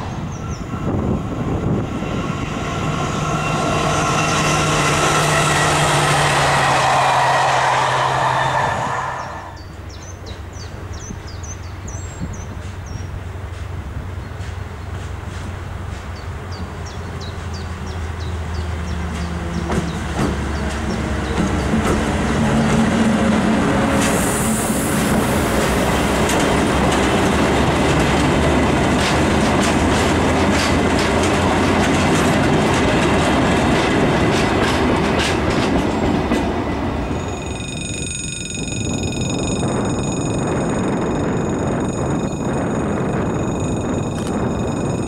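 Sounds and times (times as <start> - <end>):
high-pitched squeal: 0.0 - 9.7, 37.0 - 45.0
locomotive engine hum: 0.0 - 45.0
steady high tones: 0.4 - 9.6, 37.0 - 45.0
freight wagons rumbling: 12.0 - 45.0
wheels clacking over rail joints: 19.0 - 24.3, 25.0 - 45.0.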